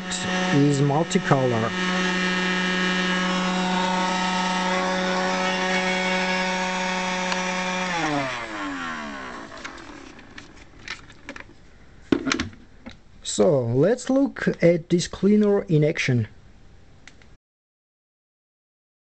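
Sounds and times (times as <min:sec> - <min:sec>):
electric motor whining: 0:00.0 - 0:10.8.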